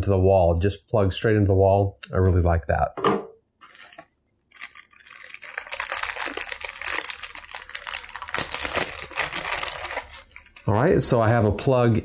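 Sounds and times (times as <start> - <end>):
plastic bag crinkling: 3.6 - 10.8.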